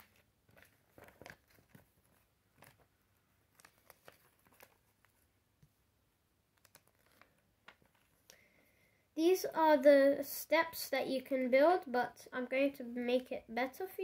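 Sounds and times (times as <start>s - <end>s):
paper pages turning: 0.0s - 5.3s, 6.5s - 8.3s.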